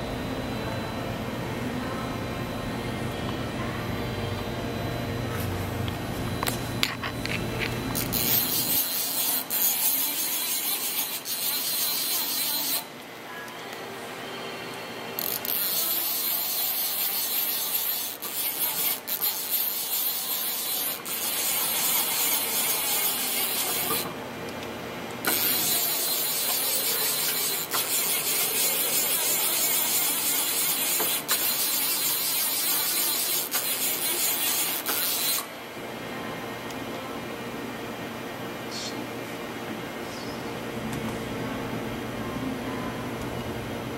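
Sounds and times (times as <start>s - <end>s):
machining center hissing rasp: 15.2s - 24.1s, 25.2s - 35.5s.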